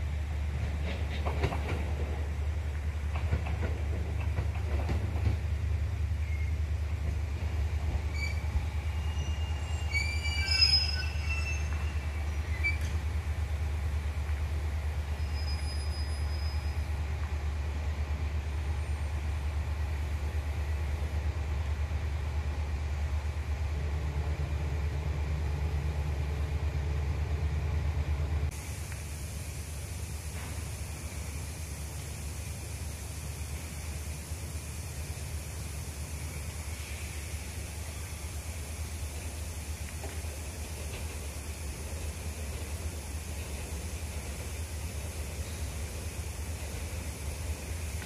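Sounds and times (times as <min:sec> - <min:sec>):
high-pitched squeals: 0:08.1 - 0:12.8.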